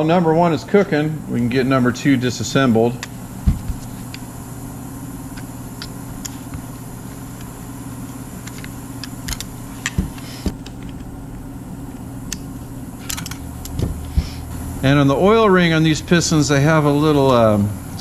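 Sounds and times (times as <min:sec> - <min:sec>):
ultrasonic cleaner humming: 0:00.0 - 0:18.0.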